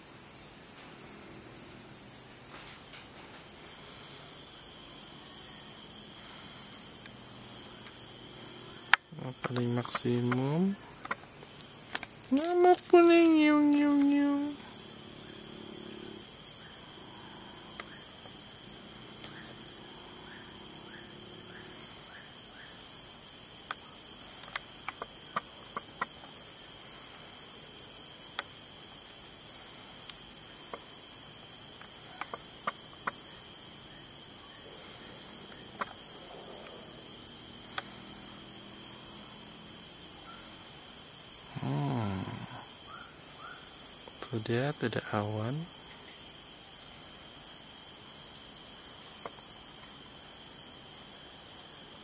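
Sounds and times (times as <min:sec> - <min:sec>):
crickets trilling: 0:00.0 - 0:52.0
pulsing cricket chirp: 0:00.0 - 0:52.0
person's voice murmuring: 0:12.3 - 0:14.6, 0:41.5 - 0:42.7.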